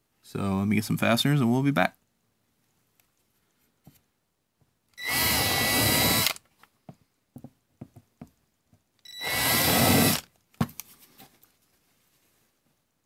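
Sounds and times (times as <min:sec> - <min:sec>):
cordless drill whining: 0:05.0 - 0:06.4, 0:09.0 - 0:10.3.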